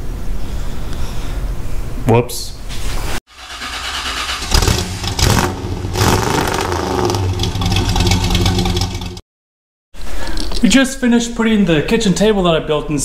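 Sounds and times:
car engine starting and running: 3.3 - 9.2
harsh starter grinding: 3.3 - 9.2.

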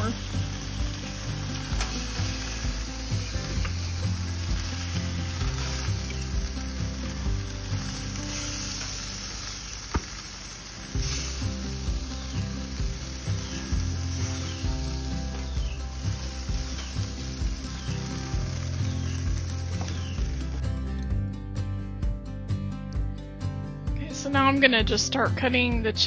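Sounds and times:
meat sizzling on a grill: 0.0 - 20.6.

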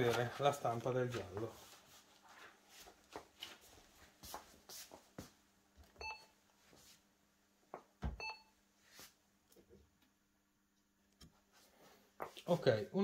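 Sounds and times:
short electronic beeps: 6.0 - 6.3, 8.2 - 8.5.

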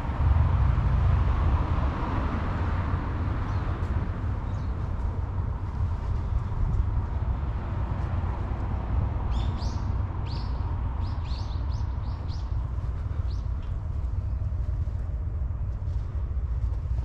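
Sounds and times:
steady low rumble: 0.0 - 17.0
birds chirping: 9.3 - 14.6.

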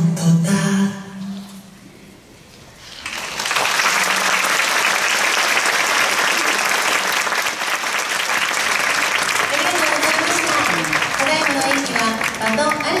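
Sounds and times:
audience applause: 2.9 - 13.0.

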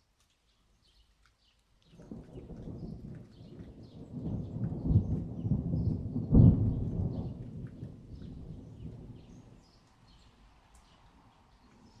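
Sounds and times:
thunder rumbling: 2.0 - 9.7
loud thunder clap: 2.1 - 9.3.

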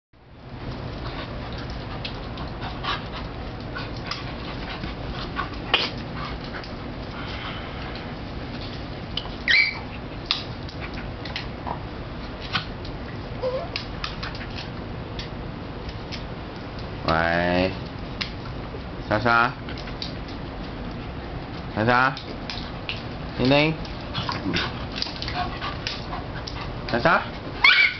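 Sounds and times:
dog whining: 9.4 - 10.0, 13.4 - 13.8, 27.6 - 27.9
dog yelping: 9.4 - 10.0, 13.4 - 13.8, 27.6 - 27.9
dogs scuffling: 19.5 - 27.9.

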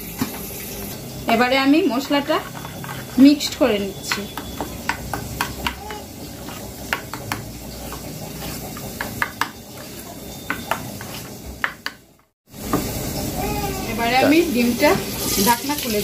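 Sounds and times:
steel spoon scraping a steel bowl: 1.8 - 11.8.

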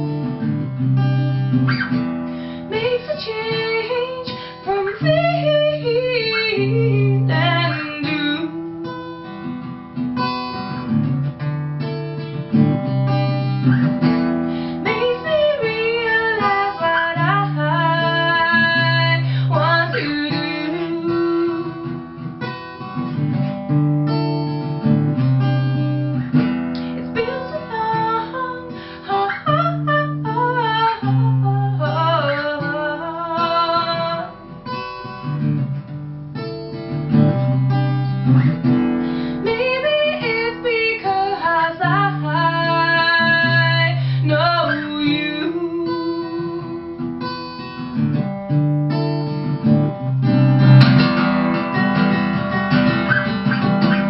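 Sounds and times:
acoustic guitar: 0.0 - 54.0
woman singing: 2.6 - 9.4, 14.7 - 22.5, 26.8 - 34.5, 38.6 - 48.0.

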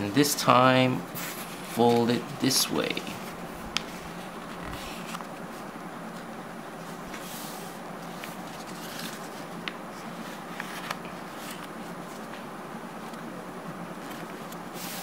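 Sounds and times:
steady low hum: 0.0 - 15.0
paper rustling and creasing: 1.2 - 6.3, 7.1 - 12.4, 13.9 - 15.0.

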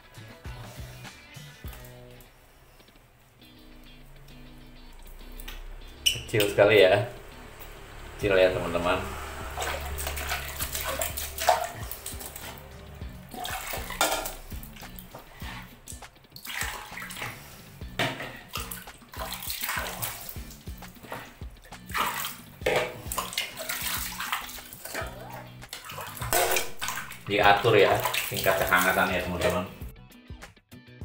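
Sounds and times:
background music: 0.0 - 31.0
water splashing by hand: 4.8 - 29.8
water pouring into plastic bucket: 8.9 - 17.5, 18.3 - 29.7.

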